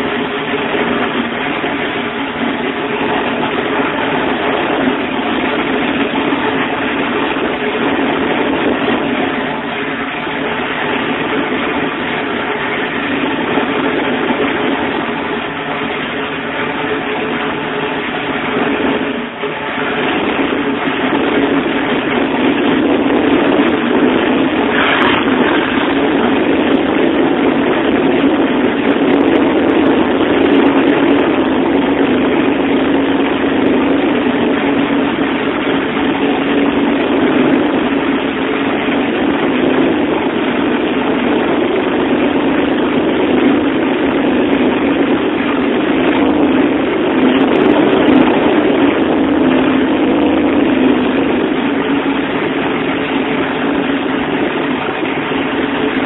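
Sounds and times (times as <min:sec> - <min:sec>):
car engine idling: 0:00.0 - 0:40.5.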